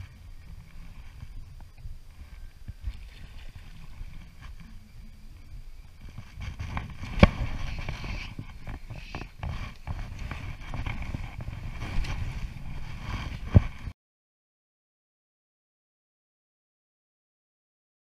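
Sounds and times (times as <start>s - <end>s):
low rumbling wind: 0.0s - 14.0s
microphone handling noise: 0.0s - 14.0s.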